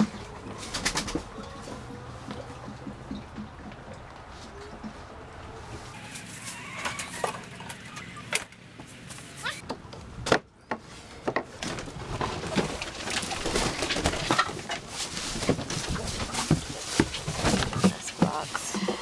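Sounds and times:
hens clucking: 0.0s - 8.6s, 15.7s - 19.0s.

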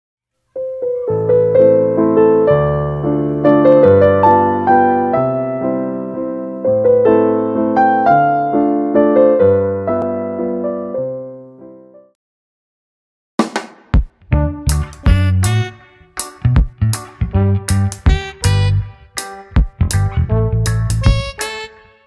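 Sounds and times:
gentle piano music: 0.5s - 12.2s.

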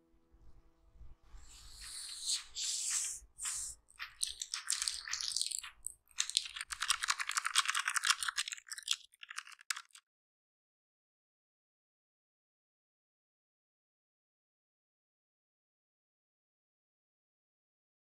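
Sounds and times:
keyboard keystrokes clicking: 4.0s - 10.0s.

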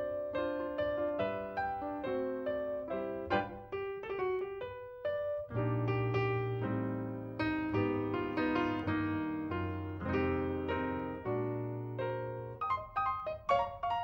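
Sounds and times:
piano music: 0.0s - 14.0s.

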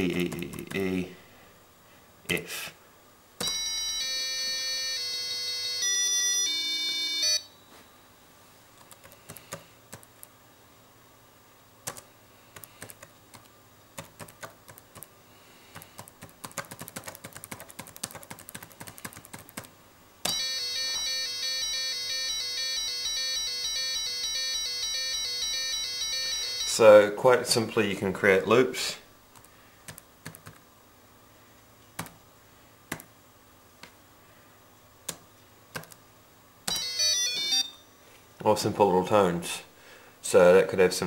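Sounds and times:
computer keyboard typing: 8.8s - 10.3s, 11.8s - 15.1s, 15.7s - 19.7s, 29.4s - 30.6s, 32.0s - 32.2s, 35.1s - 36.0s
piezo speaker beeping notes: 20.3s - 26.9s, 36.7s - 38.0s.

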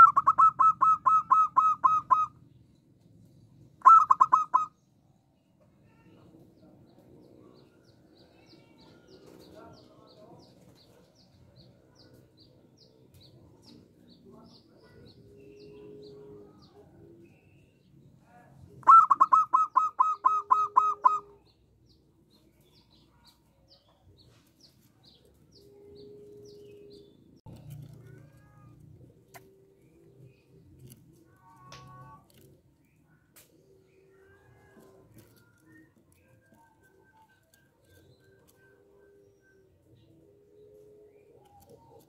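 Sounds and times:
dove calling clipped notes: 0.0s - 2.5s, 3.8s - 4.8s, 18.8s - 21.5s.

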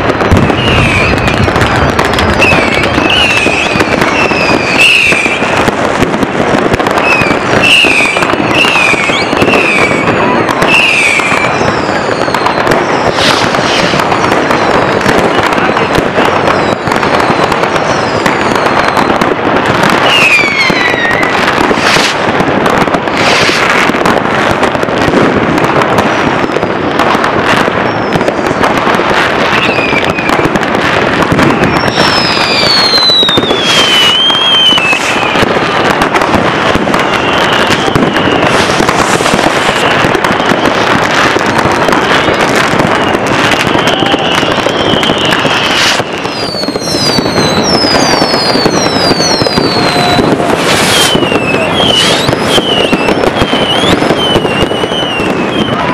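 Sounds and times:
firework whistles falling: 0.0s - 24.2s, 24.9s - 55.9s
fireworks bangs and crackling: 0.0s - 55.9s.

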